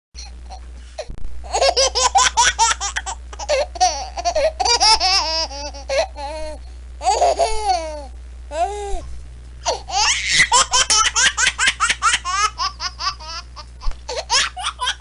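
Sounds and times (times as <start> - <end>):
baby laughing: 1.5 - 6.4, 7.0 - 8.1, 9.7 - 15.0.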